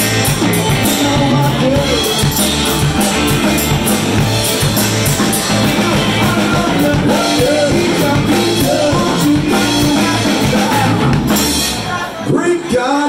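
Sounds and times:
drum kit: 0.0 - 12.2
electric guitar: 0.0 - 13.0
rock band playing: 0.0 - 13.0
man singing: 0.4 - 2.6, 5.3 - 13.0.

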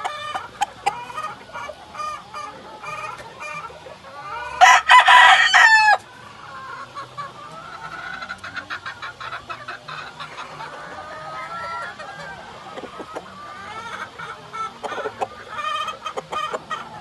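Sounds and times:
chickens clucking: 0.0 - 17.0
rooster crowing: 4.4 - 6.0, 11.0 - 12.6.

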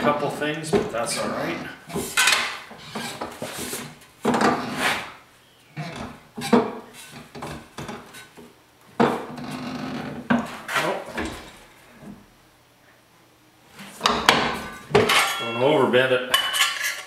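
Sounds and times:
sheet metal clanking and scraping: 0.0 - 5.1, 13.9 - 17.0.

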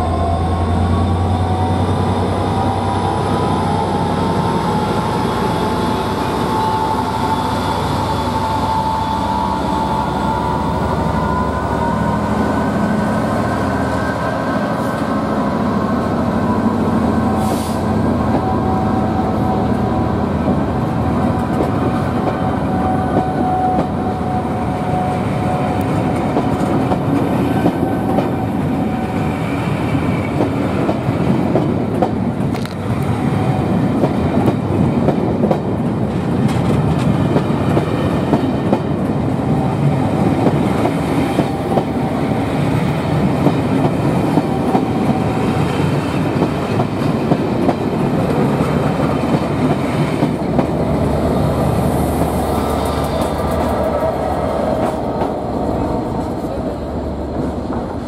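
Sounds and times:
train wheels clattering over rail joints: 33.5 - 39.2.

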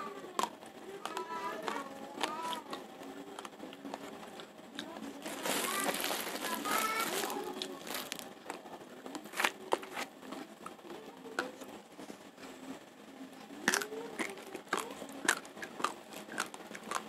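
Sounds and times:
plastic sack crinkling: 5.2 - 8.4
rice grains crunching between teeth: 13.6 - 17.0.

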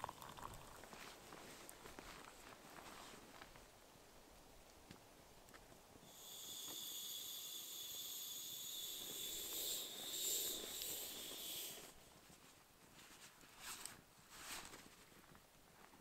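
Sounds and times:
air hissing out of a valve: 6.0 - 12.0.

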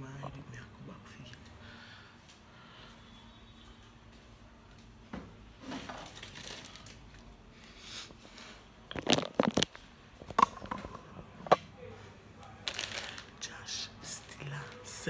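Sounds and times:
rustling of household objects: 5.2 - 13.4.

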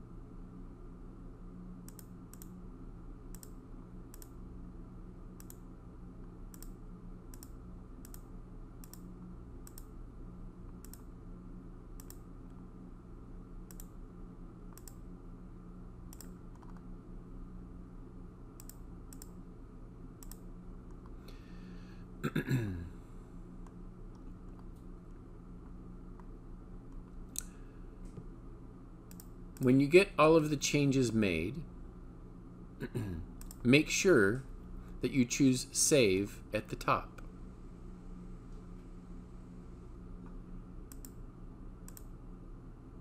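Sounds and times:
steady low hum: 0.0 - 43.0
computer mouse clicking: 1.8 - 2.6, 3.3 - 4.4, 5.4 - 5.6, 6.5 - 9.9, 10.8 - 11.1, 12.0 - 12.2, 13.7 - 14.0, 14.7 - 15.0, 16.1 - 16.9, 18.6 - 19.4, 20.2 - 21.1, 29.1 - 29.7, 33.4 - 33.6, 40.9 - 41.2, 41.8 - 42.1.

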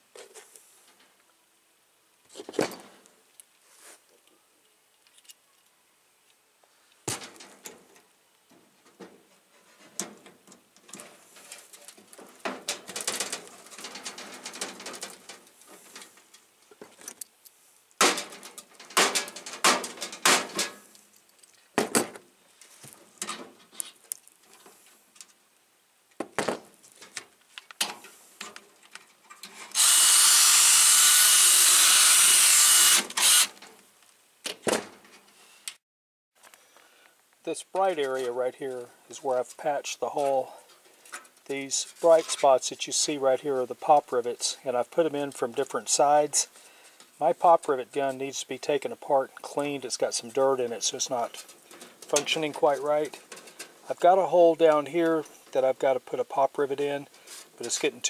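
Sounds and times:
power drill boring through metal: 29.7 - 33.5.

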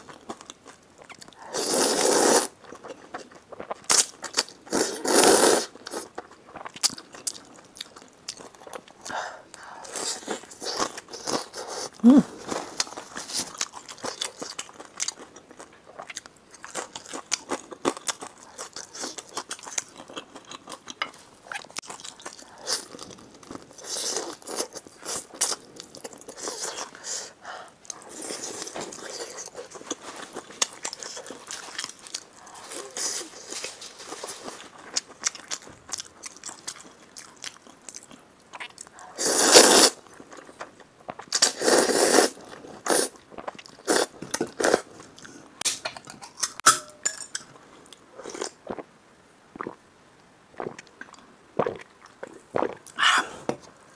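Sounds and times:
wet chewing and smacking: 0.0 - 1.4, 34.5 - 39.0
noodle slurps: 1.5 - 2.5, 41.4 - 43.2.

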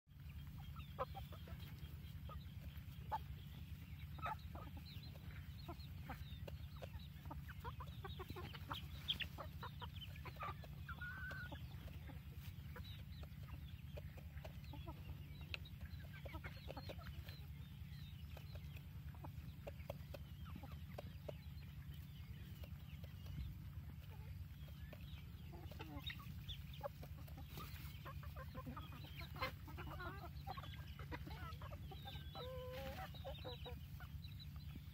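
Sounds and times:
chickens clucking: 0.1 - 34.9
chicken drawn-out call: 25.5 - 34.6.

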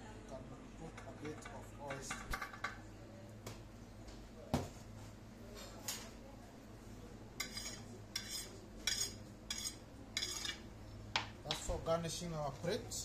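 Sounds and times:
metal utensil scraping ceramic plate: 7.4 - 10.6.

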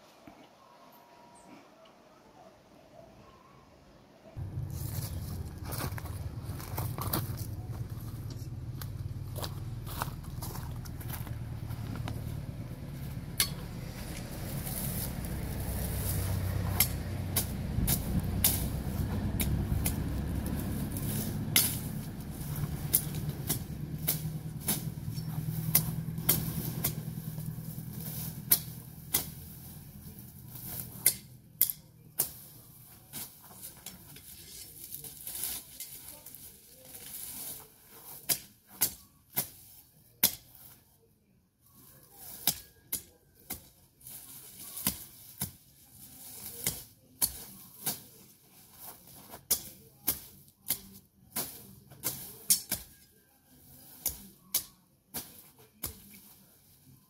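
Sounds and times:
low hum: 4.4 - 31.0
machete chopping weeds: 13.3 - 40.8, 41.8 - 56.4.

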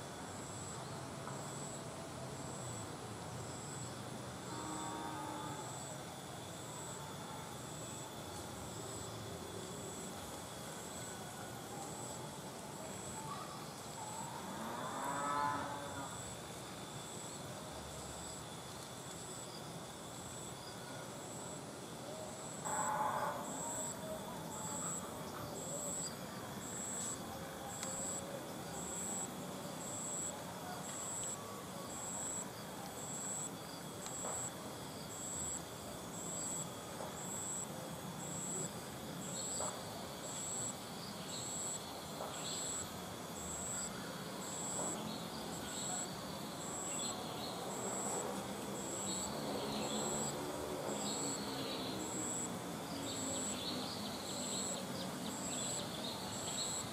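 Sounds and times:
insects droning: 0.0 - 56.9
high insect chirps: 22.3 - 56.9.

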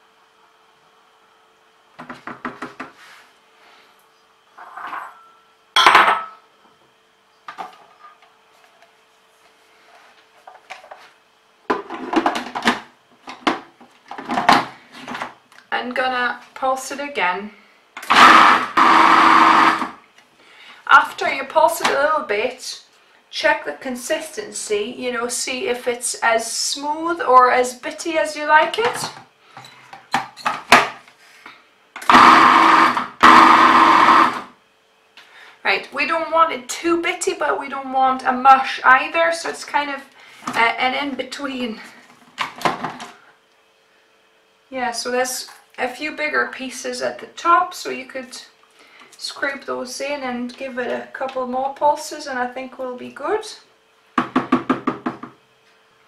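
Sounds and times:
food processor chopping: 18.0 - 20.0, 32.0 - 34.5.

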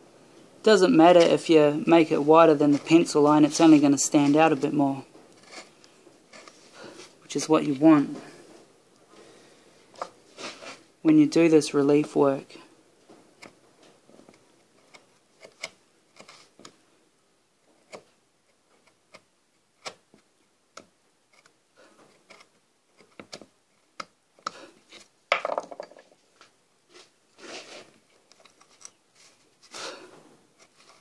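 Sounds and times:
chisel cutting and scraping wood: 2.1 - 7.1, 14.6 - 16.7, 21.3 - 25.1.

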